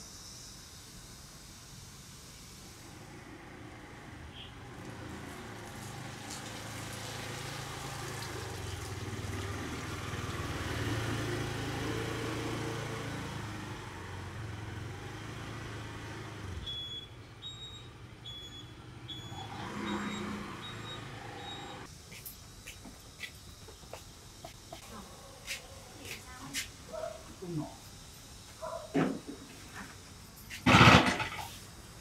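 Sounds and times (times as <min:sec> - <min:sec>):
scooter engine humming: 0:02.8 - 0:27.2
short high-pitched beeps: 0:16.7 - 0:21.8.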